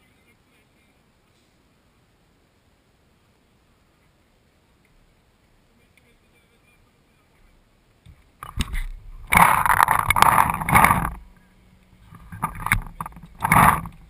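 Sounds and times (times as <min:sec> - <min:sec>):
rubbing and scraping on microphone: 0:08.1 - 0:14.0.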